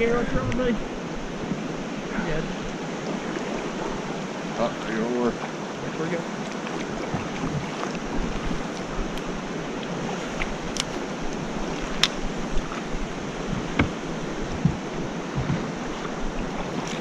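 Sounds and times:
river water rushing: 0:00.0 - 0:17.0
dull thumps: 0:13.4 - 0:15.8.

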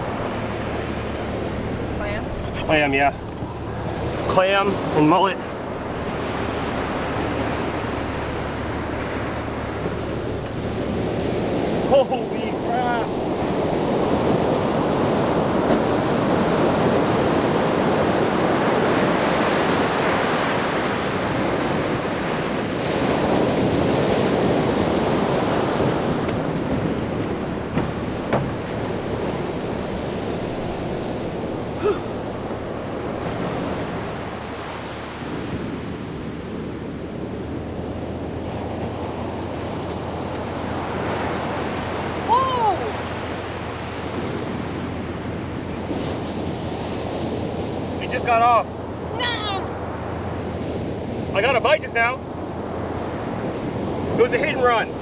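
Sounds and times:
wind on microphone: 0:00.0 - 0:48.0
ocean surf washing onto beach: 0:00.0 - 0:55.0.

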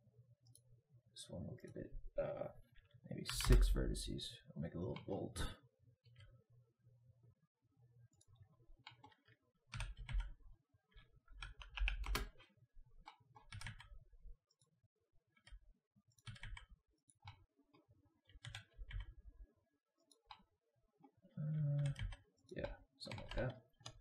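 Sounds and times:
keyboard keys clicking: 0:08.9 - 0:10.3, 0:11.4 - 0:12.4, 0:13.4 - 0:13.9, 0:16.2 - 0:17.4, 0:18.3 - 0:19.1, 0:21.8 - 0:22.2, 0:23.1 - 0:24.0.

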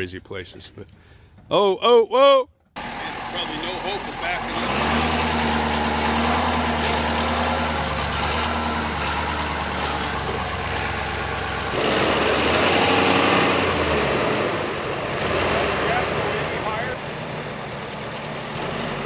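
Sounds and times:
pickup engine running: 0:02.8 - 0:12.3.

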